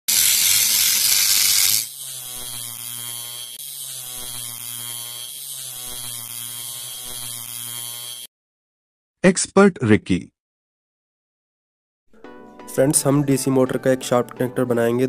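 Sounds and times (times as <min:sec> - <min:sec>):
grinder cutting metal sheet: 0:00.0 - 0:08.3
electric motor humming: 0:00.1 - 0:08.3.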